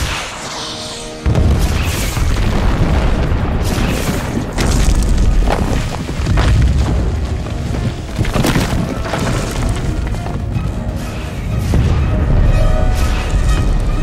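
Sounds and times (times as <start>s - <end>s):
film score music: 0.0s - 14.0s
rock breaking crashes: 2.2s - 10.4s.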